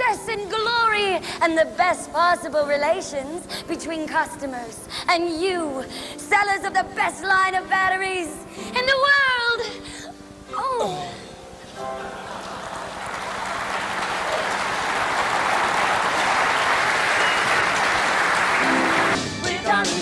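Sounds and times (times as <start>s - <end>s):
audience applauding: 11.8s - 19.2s.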